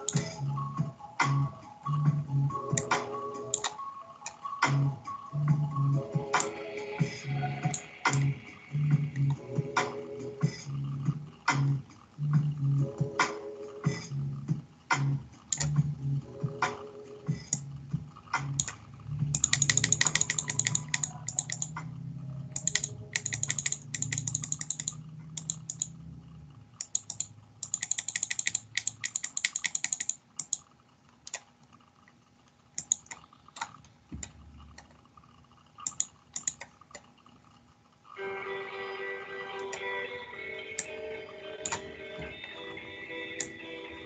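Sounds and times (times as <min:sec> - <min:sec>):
low droning: 0:07.1 - 0:13.1, 0:13.8 - 0:27.6
computer keyboard typing: 0:18.6 - 0:21.8, 0:22.5 - 0:26.0, 0:26.8 - 0:30.7, 0:32.8 - 0:34.9, 0:35.8 - 0:37.0.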